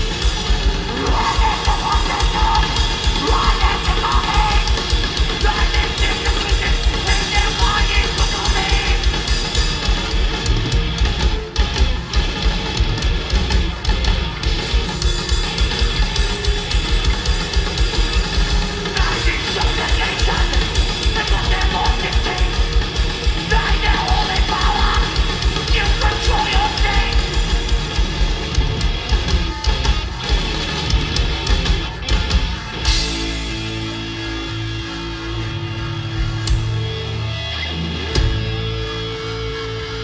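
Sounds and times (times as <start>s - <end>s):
pounding drums: 0.0s - 34.3s
distorted guitar: 0.0s - 40.0s
shouted vocals: 0.8s - 9.1s, 23.4s - 27.3s.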